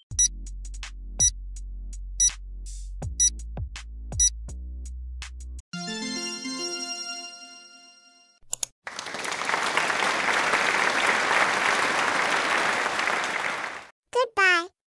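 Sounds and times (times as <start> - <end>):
electronic background music: 5.8 - 8.4
applause: 8.9 - 13.9.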